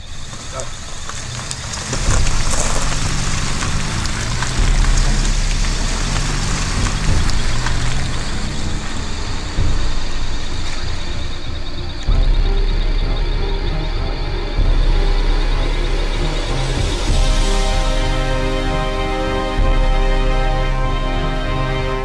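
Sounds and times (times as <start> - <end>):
truck engine driving off: 0.0 - 22.0.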